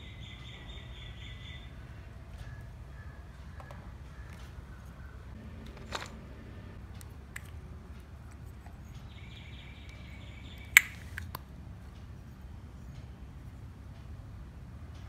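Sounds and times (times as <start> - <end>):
steady background noise: 0.0 - 15.0
sharp clicks: 9.8 - 11.5.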